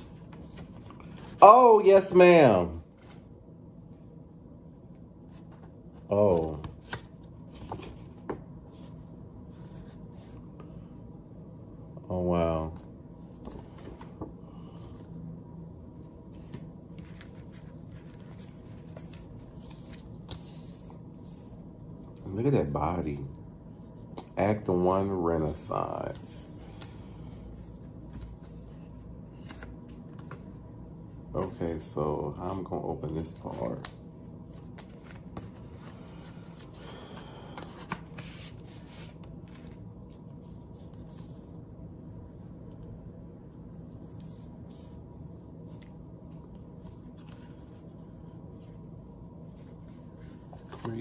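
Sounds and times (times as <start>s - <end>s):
cardboard and cards rustling: 0.0s - 2.2s, 5.3s - 10.4s, 13.2s - 15.1s, 16.2s - 21.5s, 25.5s - 30.6s, 31.4s - 41.5s, 49.5s - 51.0s
low steady hum: 0.0s - 51.0s.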